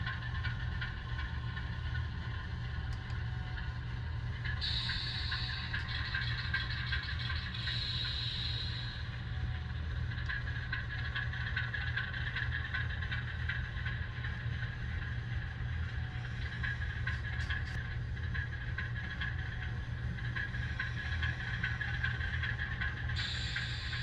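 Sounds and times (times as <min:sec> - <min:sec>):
diesel engine sound through speaker: 0:00.0 - 0:24.0
model freight cars rattling: 0:10.1 - 0:15.6.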